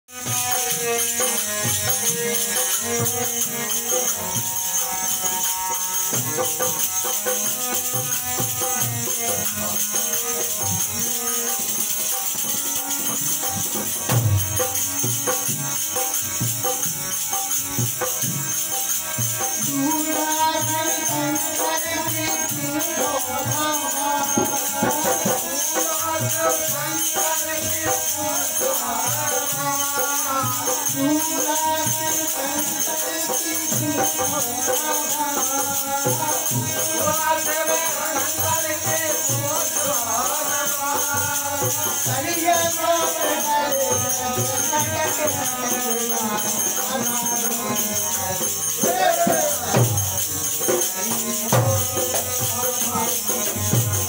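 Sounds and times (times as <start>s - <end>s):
harmonium: 0.0s - 54.0s
man singing: 0.1s - 16.8s, 18.0s - 54.0s
hand drum: 5.2s - 28.0s.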